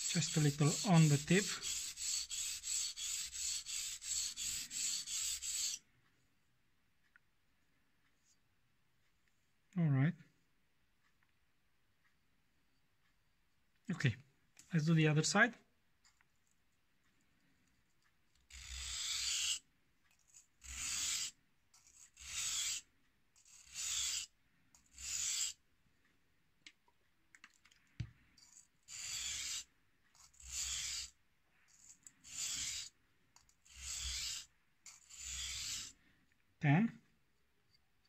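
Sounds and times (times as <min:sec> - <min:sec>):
knife scraping on whetstone: 0:00.0 - 0:05.8, 0:18.5 - 0:19.6, 0:20.2 - 0:22.8, 0:23.4 - 0:25.6, 0:28.4 - 0:36.0.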